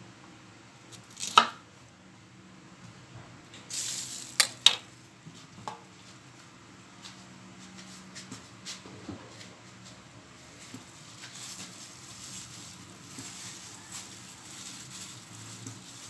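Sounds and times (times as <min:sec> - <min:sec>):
plastic bag rustling: 0:03.7 - 0:04.9, 0:10.4 - 0:16.0.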